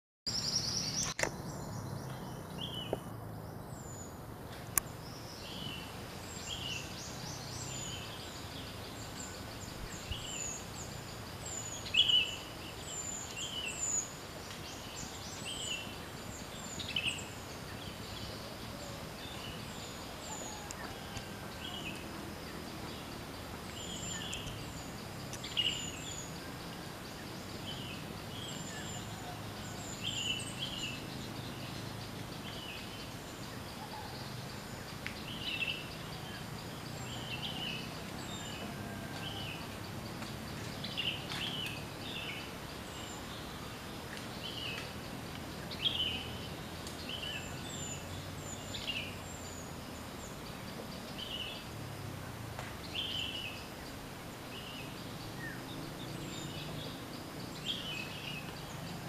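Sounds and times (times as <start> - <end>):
forest birds chirping: 0.3 - 59.0
sharp click: 1.0 - 1.4.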